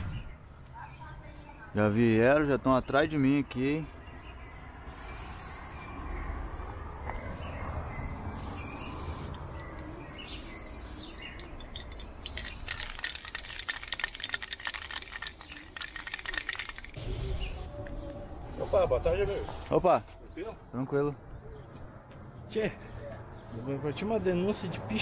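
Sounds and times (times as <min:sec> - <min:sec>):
spray-paint can hissing: 0:04.9 - 0:05.9, 0:08.4 - 0:09.4, 0:10.2 - 0:17.7.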